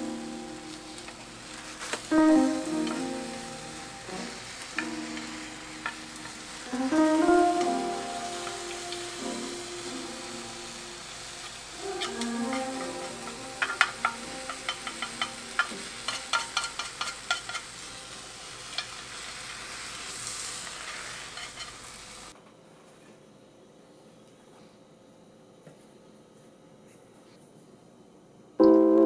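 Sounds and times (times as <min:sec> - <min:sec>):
omelette sizzling in a pan: 0:00.0 - 0:22.4
chopsticks tapping a pan: 0:00.9 - 0:10.8, 0:11.8 - 0:18.0.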